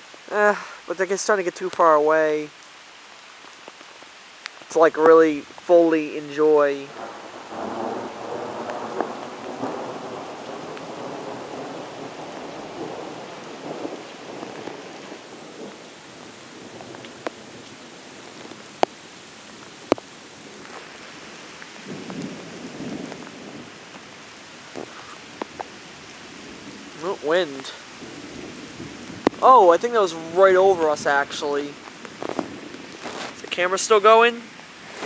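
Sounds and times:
steady rain: 0.0s - 35.0s
distant thunder rolling: 6.8s - 18.9s, 19.5s - 33.3s.

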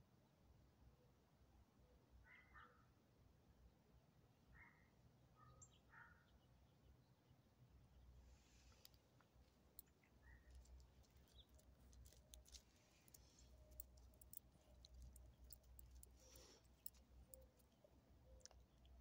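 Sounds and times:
gravel shifting under dog paws: 8.3s - 19.0s.

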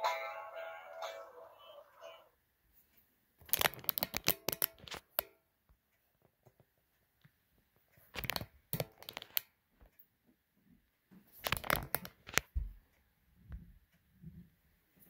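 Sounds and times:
rustling and clicking handling noise: 2.8s - 5.3s, 6.1s - 10.1s, 11.0s - 12.8s.

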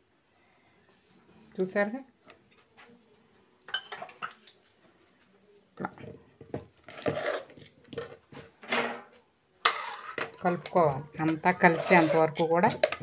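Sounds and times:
spoon scraping against metal pot: 6.8s - 8.3s, 9.6s - 13.0s.

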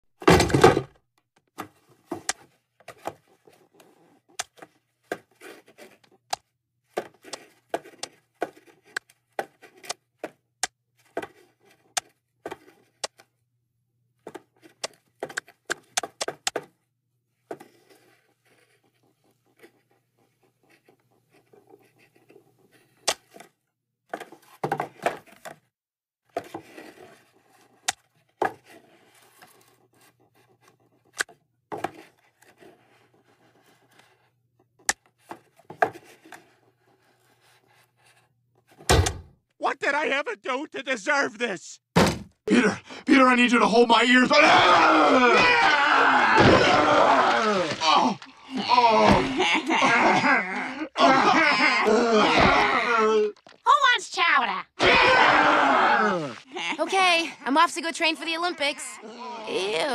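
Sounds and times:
cartoon clicks knocks and scrapes: 3.8s - 13.3s.

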